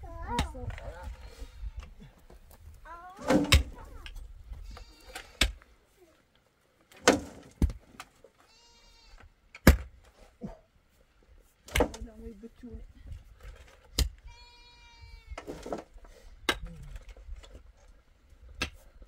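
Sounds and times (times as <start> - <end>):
animal bleating: 4.6 - 5.4, 8.4 - 9.2, 14.2 - 15.4.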